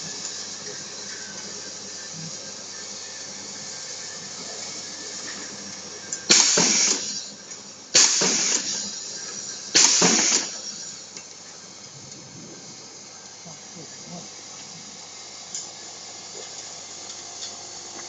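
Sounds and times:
air exhaust hiss: 0.0s - 15.0s
pneumatic press clack: 6.2s - 11.3s.

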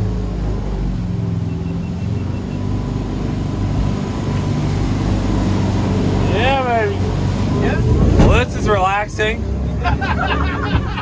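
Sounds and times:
jet boat engine running: 0.0s - 11.0s
whitewater rapids rushing: 3.2s - 9.8s.

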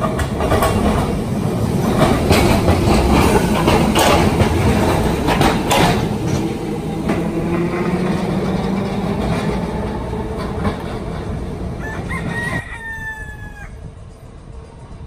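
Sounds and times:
streetcar drone with rail noise: 0.0s - 15.0s
rooster crowing: 11.7s - 13.9s.

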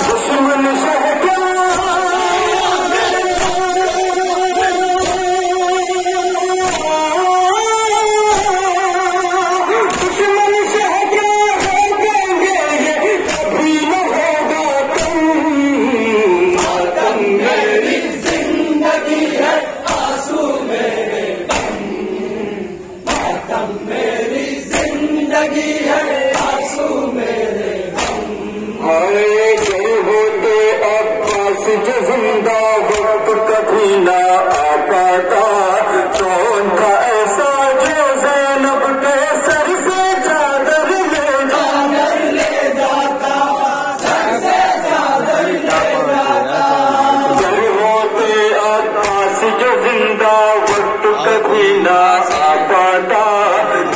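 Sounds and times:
men chanting together: 0.0s - 53.9s
person leading chant over microphone: 0.0s - 53.9s
hands striking chests in unison: 2.9s - 7.2s, 8.3s - 12.5s, 13.1s - 13.9s, 14.8s - 15.5s, 16.5s - 20.7s, 21.4s - 22.3s, 23.0s - 28.7s, 29.3s - 31.9s, 32.7s - 33.4s, 34.4s - 34.9s, 37.7s - 38.2s, 40.8s - 46.3s, 47.2s - 47.8s, 48.9s - 49.5s, 50.6s - 52.7s
hands slapping chests: 3.2s - 4.2s, 5.0s - 5.6s, 6.6s - 7.0s, 9.9s - 10.4s, 11.6s - 12.0s, 13.2s - 13.7s, 14.9s - 15.3s, 16.5s - 17.1s, 18.2s - 18.6s, 19.8s - 20.4s, 21.5s - 22.0s, 23.0s - 23.6s, 24.7s - 25.1s, 26.3s - 26.9s, 27.9s - 28.5s, 29.5s - 30.0s, 31.2s - 31.6s, 32.8s - 33.2s, 34.5s - 34.8s, 37.8s - 38.0s, 42.2s - 43.0s, 44.0s - 46.1s, 47.3s - 47.7s, 49.0s - 49.4s, 50.6s - 51.0s, 52.2s - 52.7s.

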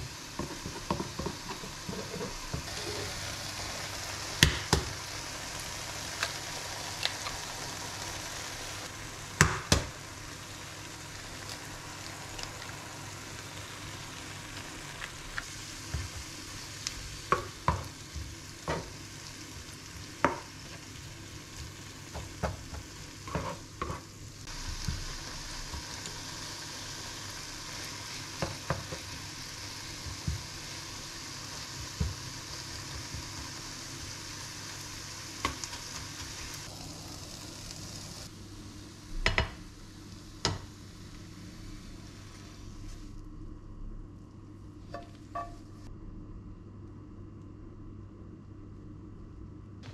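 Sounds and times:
eggs sizzling in a pan: 0.0s - 43.2s, 44.7s - 45.9s
utensil tapping and scraping pan: 0.4s - 2.9s, 22.1s - 24.0s
egg cracking knock: 9.4s - 9.9s.

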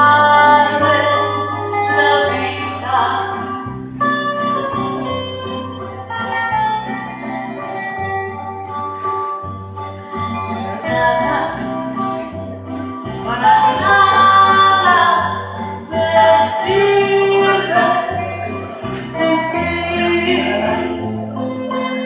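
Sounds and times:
woman singing into microphone: 0.0s - 3.6s, 10.8s - 12.0s, 13.2s - 21.1s
instrumental accompaniment with bass: 0.0s - 22.0s.

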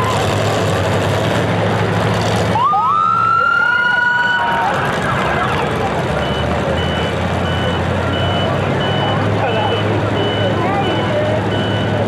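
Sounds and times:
car engines running: 0.0s - 12.0s
steady beeping: 6.0s - 12.0s.

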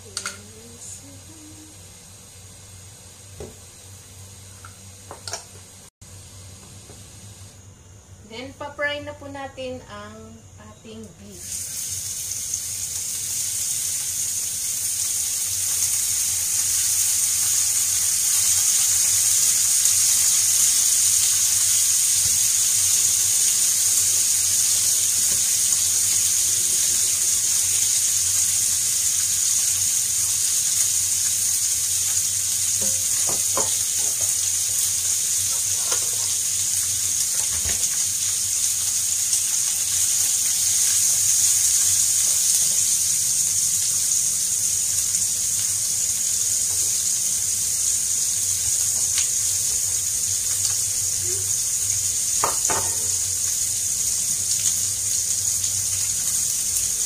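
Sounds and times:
meat sizzling in a frying pan: 0.0s - 7.7s, 11.4s - 57.0s.

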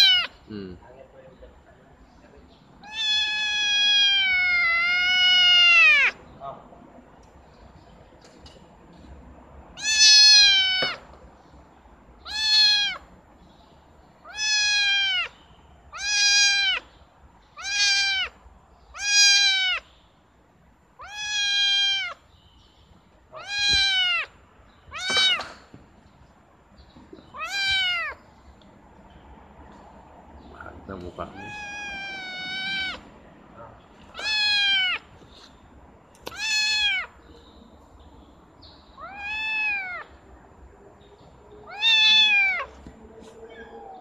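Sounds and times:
kitten meowing: 0.0s - 0.4s, 2.8s - 6.2s, 9.8s - 11.0s, 12.2s - 13.0s, 14.2s - 16.9s, 17.6s - 19.8s, 21.0s - 22.2s, 23.4s - 24.3s, 24.9s - 25.5s, 27.3s - 28.2s, 31.3s - 33.1s, 34.1s - 35.1s, 36.2s - 37.2s, 39.0s - 40.1s, 41.6s - 42.8s.

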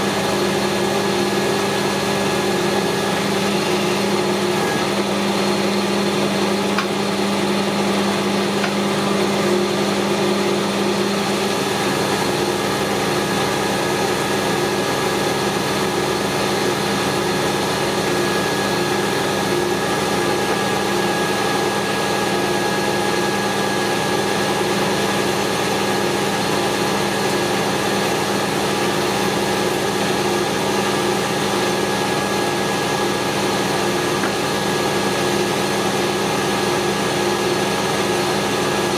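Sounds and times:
metal lathe running: 0.0s - 38.9s.

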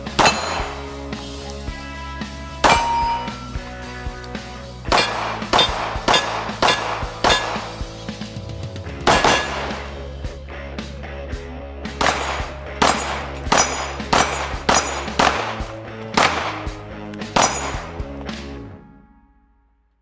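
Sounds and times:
rifle shots: 0.0s - 1.0s, 4.9s - 7.9s, 9.0s - 10.0s, 12.0s - 16.8s, 17.4s - 18.0s
metallic clang of steel targets: 0.0s - 1.2s, 2.6s - 3.8s, 4.9s - 7.9s, 9.1s - 10.0s, 12.0s - 16.7s, 17.4s - 18.0s
background music: 0.0s - 19.8s.

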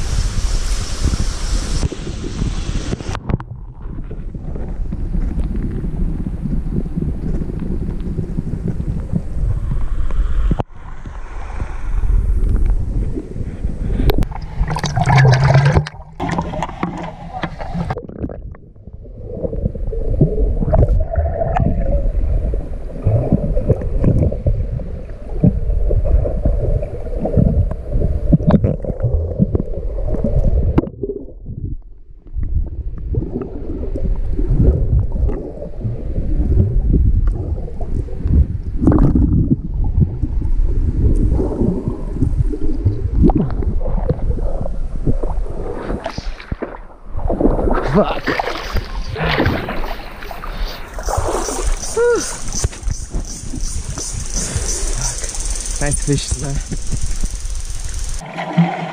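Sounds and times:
underwater river gurgling rush: 0.0s - 31.5s, 32.4s - 58.9s
scattered underwater knocks: 14.2s - 18.6s.

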